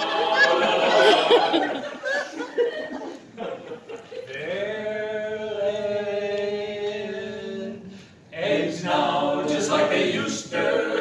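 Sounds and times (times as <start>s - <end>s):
male vocal quartet singing: 4.3s - 11.0s.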